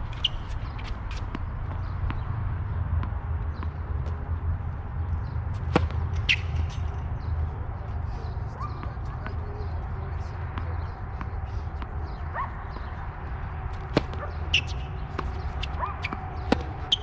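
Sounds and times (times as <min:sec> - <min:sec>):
tennis ball bouncing on hard court: 0:03.0 - 0:03.8, 0:05.2 - 0:07.3, 0:13.7 - 0:17.0.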